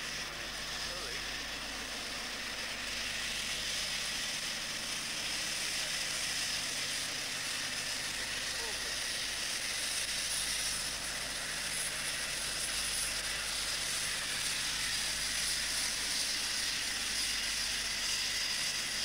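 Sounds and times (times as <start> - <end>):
distant locomotive engine drone: 0.0 - 19.0.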